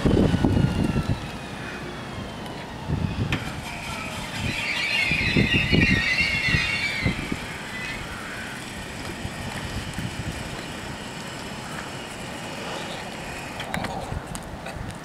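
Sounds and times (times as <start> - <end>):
steady low rumble: 0.0 - 15.0
high ringing tone: 4.0 - 8.0.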